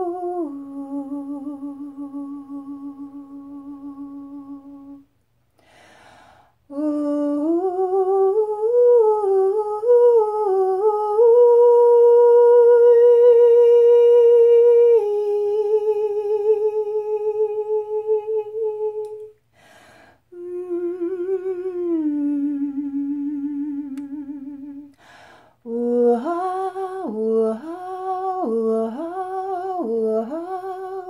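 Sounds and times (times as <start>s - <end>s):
woman breathing in: 5.5s - 6.6s, 19.4s - 20.3s, 24.9s - 25.6s.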